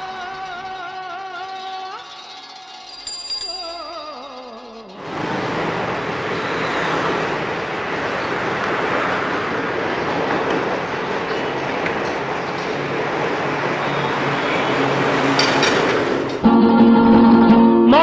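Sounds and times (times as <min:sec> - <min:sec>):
train roaring past: 0:00.0 - 0:17.3
city traffic: 0:00.0 - 0:18.0
short high ringing: 0:01.5 - 0:05.0
old film music: 0:16.4 - 0:18.0.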